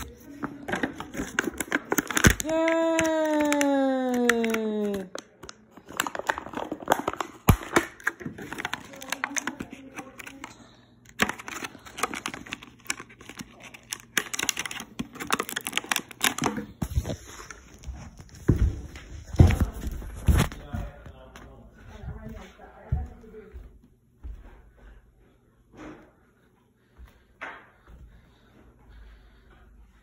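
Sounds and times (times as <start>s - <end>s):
plastic packaging crinkling: 0.0s - 18.2s.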